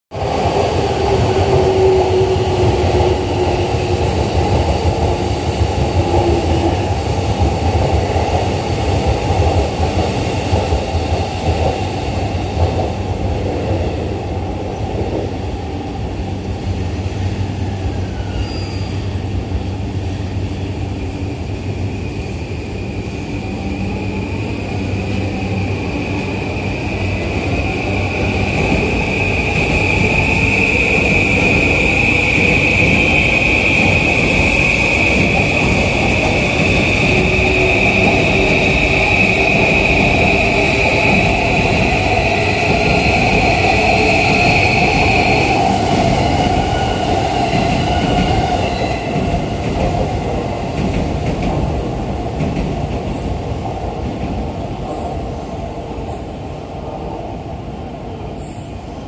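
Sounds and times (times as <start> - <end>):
train rail rumble: 23.5 - 59.0.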